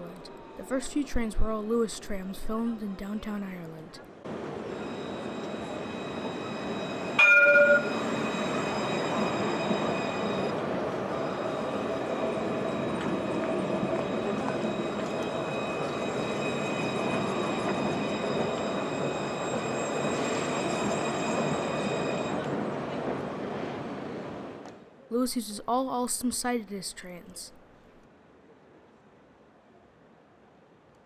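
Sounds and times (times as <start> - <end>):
tram rolling past rumble: 4.2 - 24.7
tram warning gong: 4.3 - 23.4
faint high whine: 4.3 - 24.4.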